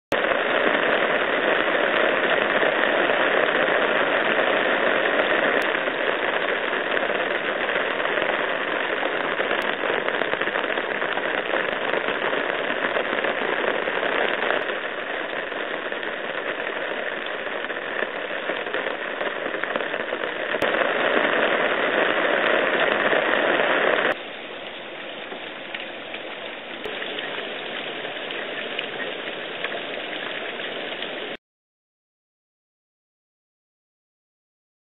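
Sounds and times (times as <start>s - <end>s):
heavy rain on tiled roof: 0.1s - 31.4s.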